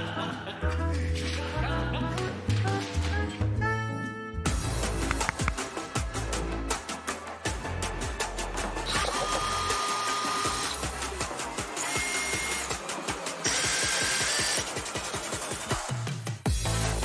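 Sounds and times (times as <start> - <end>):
drill motor whine: 8.9 - 11.0, 11.6 - 14.8.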